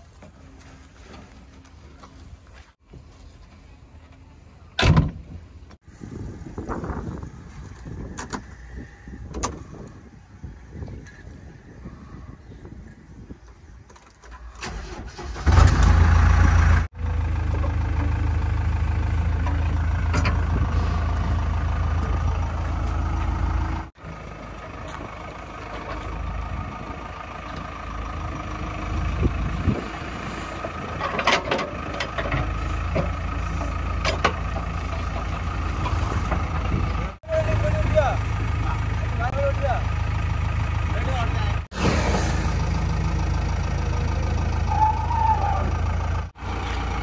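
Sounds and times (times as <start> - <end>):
diesel engine starting and idling: 14.3 - 47.0.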